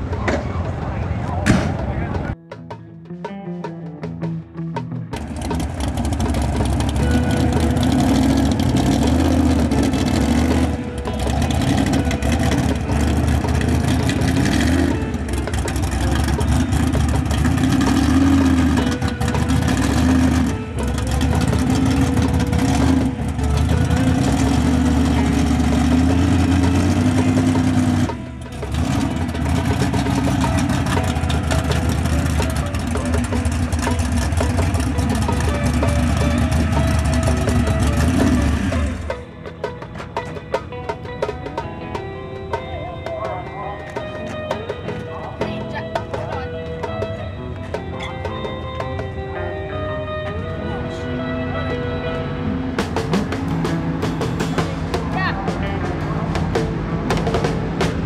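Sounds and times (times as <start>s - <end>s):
car engine being revved: 5.1s - 39.2s.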